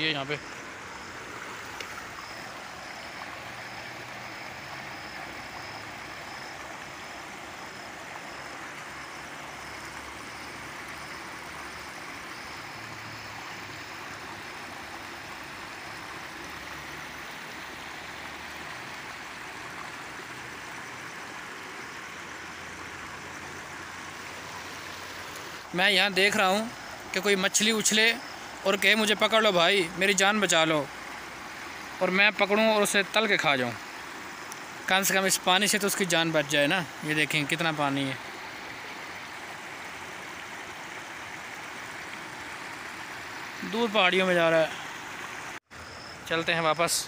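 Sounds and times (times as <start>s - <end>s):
stream rushing over rocks: 0.0s - 47.0s.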